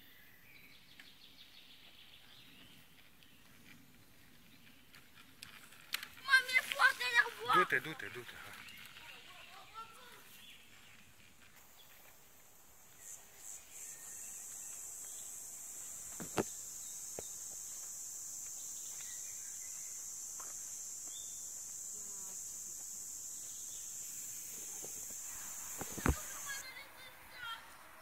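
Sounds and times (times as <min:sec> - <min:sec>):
insects buzzing: 0:00.1 - 0:28.0.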